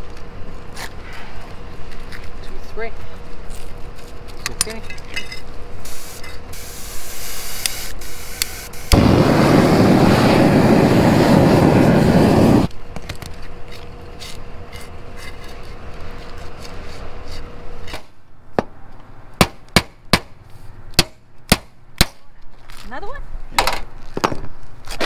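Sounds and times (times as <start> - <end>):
propane torch roaring: 5.7 - 16.5.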